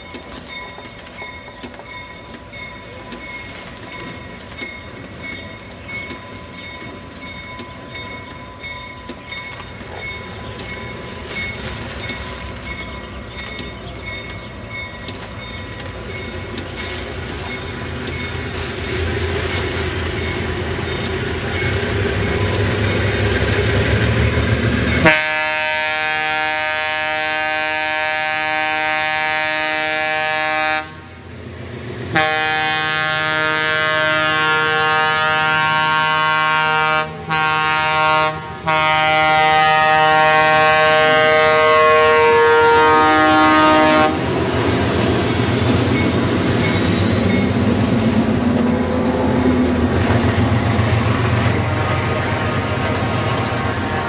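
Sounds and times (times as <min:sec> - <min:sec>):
train rumbling past: 0:00.0 - 0:54.0
locomotive air horn blasts: 0:25.0 - 0:31.2, 0:32.1 - 0:44.3.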